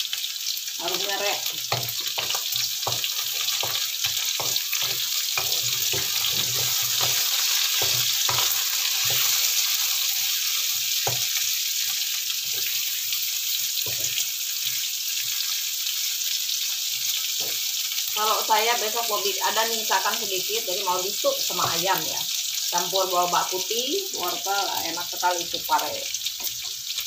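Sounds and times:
vegetables frying hiss: 0.0 - 27.0
spatula scraping and knocking pan: 1.4 - 11.5, 12.4 - 12.9, 13.8 - 14.2, 17.4 - 17.6.

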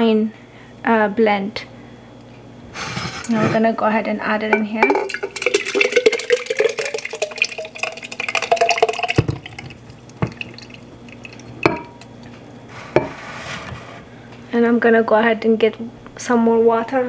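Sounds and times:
glass knocks: 4.6 - 5.4, 10.2 - 10.4, 11.6 - 12.0
liquid pouring and gurgling: 4.6 - 12.3.

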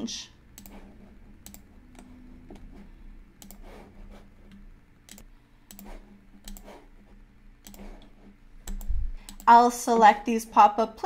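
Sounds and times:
faint low hum: 0.0 - 11.0
computer mouse clicks: 0.5 - 3.8, 4.4 - 6.8, 7.6 - 9.5.

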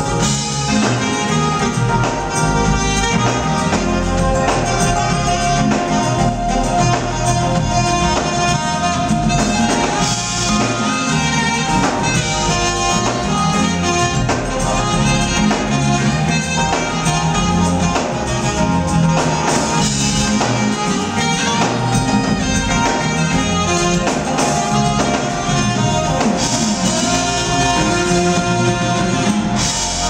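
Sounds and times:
drum kit beat: 0.0 - 30.0
electric bass: 0.0 - 30.0
keyboards: 0.0 - 30.0
saxophone melody: 0.0 - 30.0.

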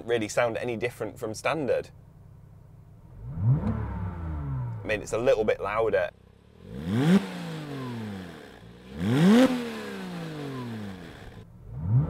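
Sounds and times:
car engine revving: 3.0 - 5.3, 6.1 - 12.0.

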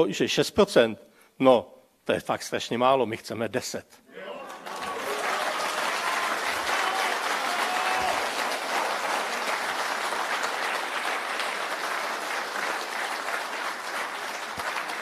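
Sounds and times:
audience applauding: 4.2 - 15.0.

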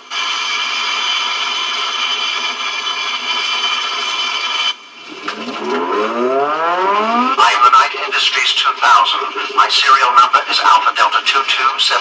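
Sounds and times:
rising pitched whine: 4.9 - 8.4.

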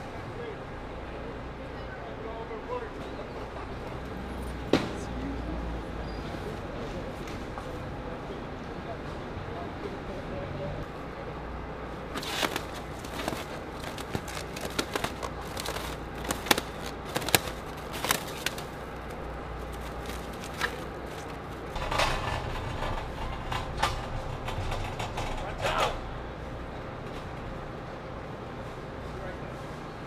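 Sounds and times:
steady low hum: 7.4 - 30.0
plastic wrap crackling: 12.1 - 21.8.

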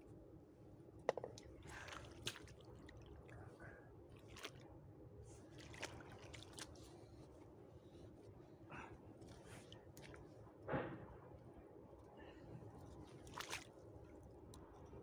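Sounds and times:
small water splashes: 1.4 - 4.7, 5.4 - 7.1, 13.0 - 14.2.

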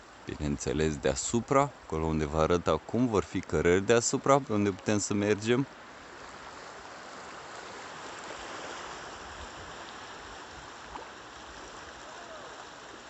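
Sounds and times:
sea surf on shingle beach: 2.8 - 13.0.

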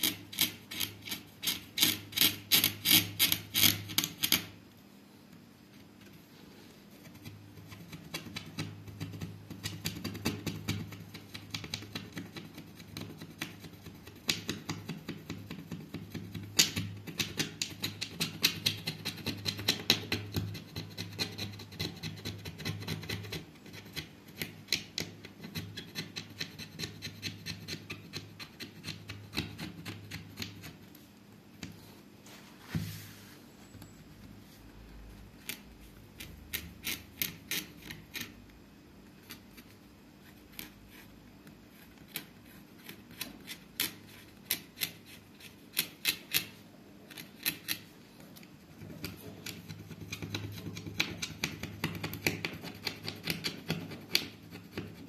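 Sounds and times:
craft knife scraping stencil: 0.0 - 4.6, 15.2 - 30.9, 35.4 - 38.4, 48.8 - 55.0.

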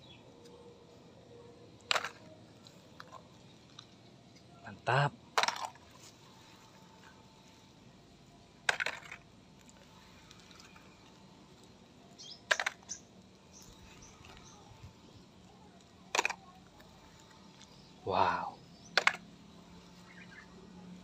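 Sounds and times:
plastic toys clattering into basket: 1.9 - 2.4, 5.4 - 5.9, 8.6 - 9.3, 12.5 - 13.0, 16.1 - 16.5, 19.0 - 19.3.

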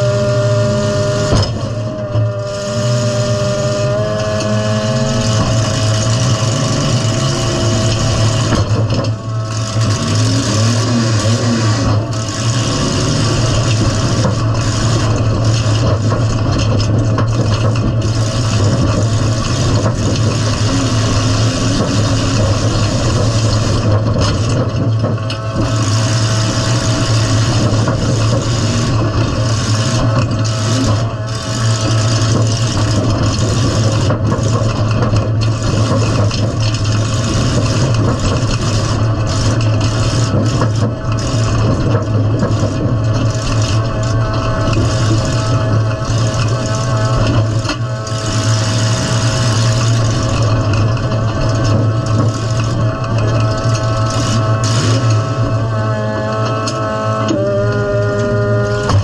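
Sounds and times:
car engine running loud: 0.0 - 59.0
mechanical din: 1.2 - 59.0.

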